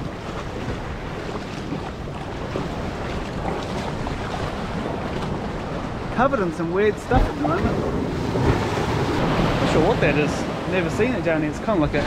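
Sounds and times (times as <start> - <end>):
feet splashing in water: 0.0 - 6.1
surf washing in shallows: 0.0 - 12.0
wind buffeting microphone: 0.0 - 12.0.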